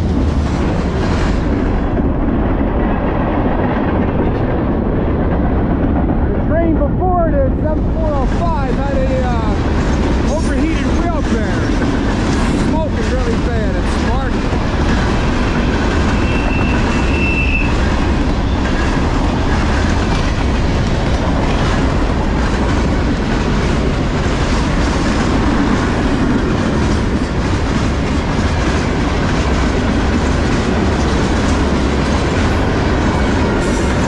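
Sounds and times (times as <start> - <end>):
freight train cars rolling: 0.0 - 34.0.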